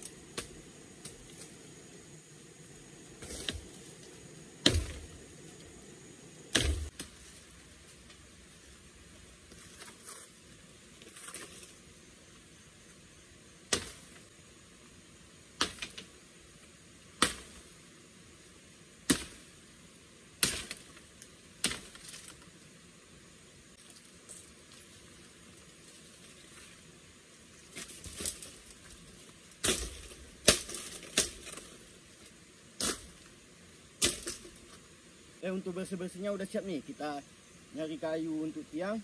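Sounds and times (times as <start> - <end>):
vegetation rustling: 0.0 - 14.3, 23.7 - 39.0
machete chopping bamboo: 4.6 - 5.1, 6.5 - 7.2, 13.7 - 14.1, 15.6 - 16.1, 17.2 - 17.6, 19.0 - 19.5, 20.4 - 20.9, 21.6 - 22.1, 29.6 - 31.7, 34.0 - 34.6.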